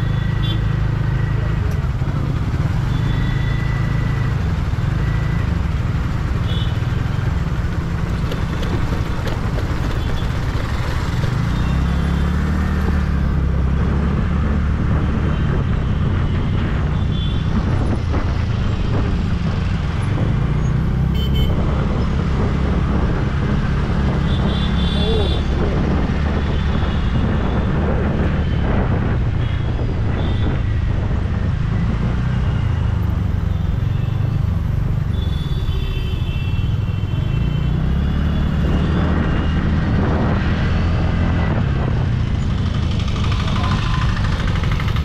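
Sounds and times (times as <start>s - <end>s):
surrounding traffic: 0.0s - 45.0s
scooter engine rumble: 42.2s - 45.0s.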